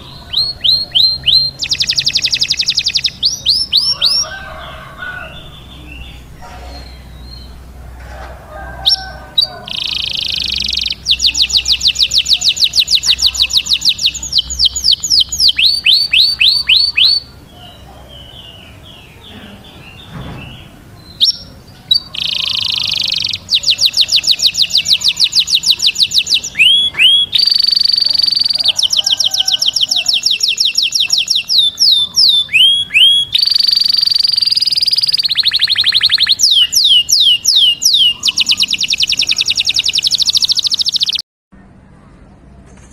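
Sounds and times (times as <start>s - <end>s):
canary singing trills: 0.0s - 7.8s, 8.8s - 41.2s.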